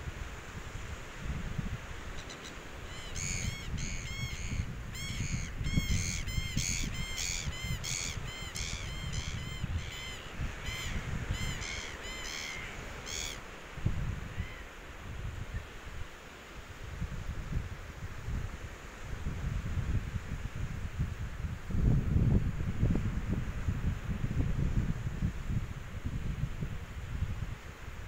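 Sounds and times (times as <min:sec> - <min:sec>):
wind rumble on microphone: 0:00.0 - 0:28.0
birds calling: 0:02.2 - 0:13.4.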